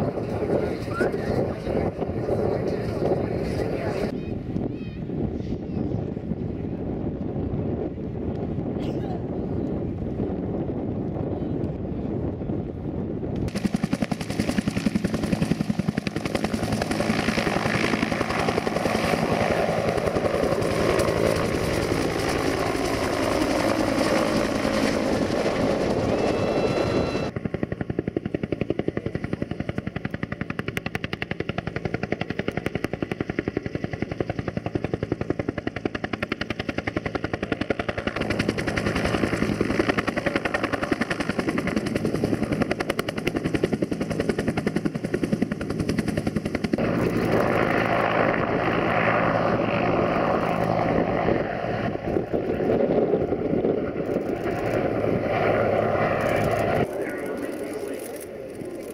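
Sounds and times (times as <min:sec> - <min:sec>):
helicopter rotor thumping: 0:13.4 - 0:58.9
turbine whine: 0:16.8 - 0:27.4, 0:46.6 - 0:58.9.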